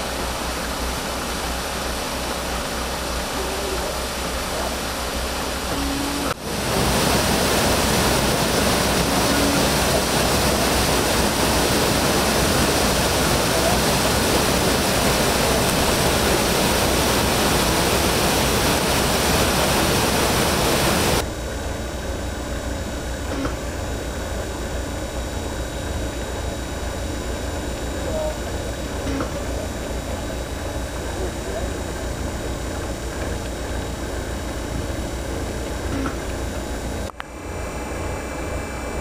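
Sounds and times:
water gushing through lock sluices: 0:00.0 - 0:21.2
steady background noise: 0:00.0 - 0:39.0.

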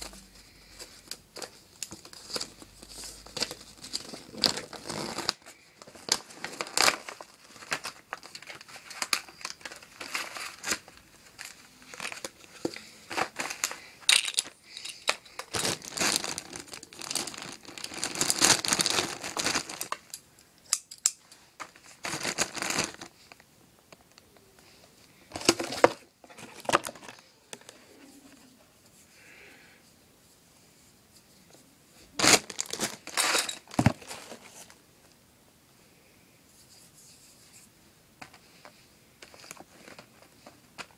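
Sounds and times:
plastic bag crinkling: 0:01.1 - 0:20.2, 0:21.6 - 0:23.4, 0:32.1 - 0:34.7.

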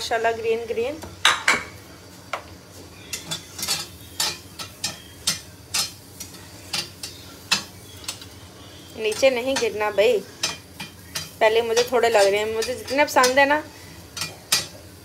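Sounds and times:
onions sizzling: 0:00.0 - 0:15.0
metal tongs clicking on grill pan: 0:03.1 - 0:15.0.

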